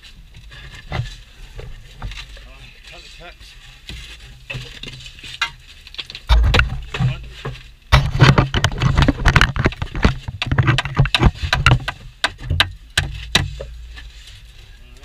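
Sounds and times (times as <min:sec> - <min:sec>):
tool scraping and knocking soil: 0:00.0 - 0:14.6.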